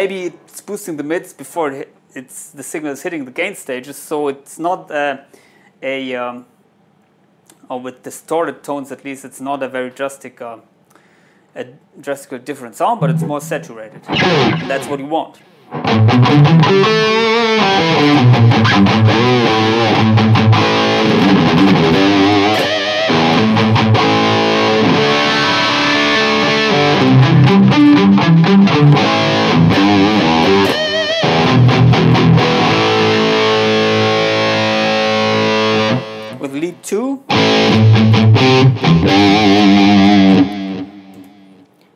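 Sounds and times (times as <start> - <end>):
distorted electric guitar riffing: 13.0 - 15.0, 15.7 - 36.3, 37.3 - 41.6.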